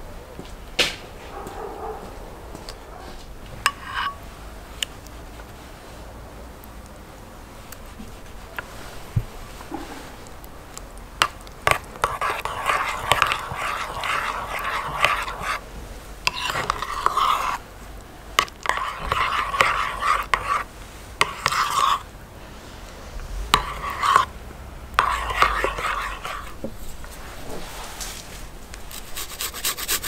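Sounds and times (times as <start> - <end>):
spoon stirring thick sauce: 3.6 - 5.6, 7.5 - 15.6, 16.2 - 22.1, 23.5 - 27.2.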